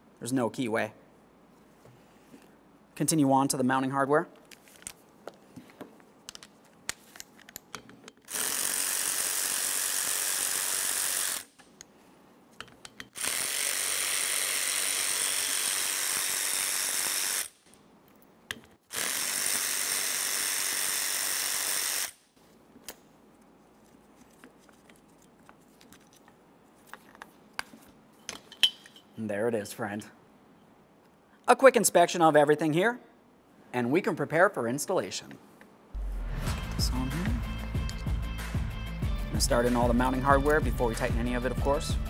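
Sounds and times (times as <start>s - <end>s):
clicks of tool and metal parts: 6.3s - 8.3s, 12.6s - 13.2s, 24.4s - 29.1s
electric ratchet running: 8.3s - 11.6s, 13.2s - 17.6s, 18.9s - 22.2s.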